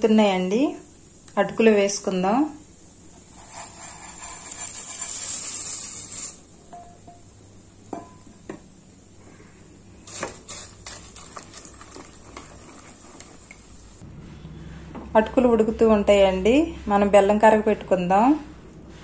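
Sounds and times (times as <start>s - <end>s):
rice pouring into milk hissing: 3.3s - 6.5s, 9.4s - 14.0s
spoon knocking and scraping steel: 3.3s - 7.2s, 10.0s - 13.6s.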